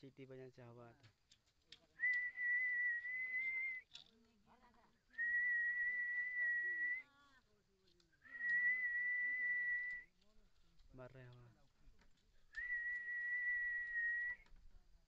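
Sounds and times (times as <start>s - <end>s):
man whistling: 2.0s - 3.8s, 5.1s - 7.0s, 8.2s - 10.1s, 12.5s - 14.5s.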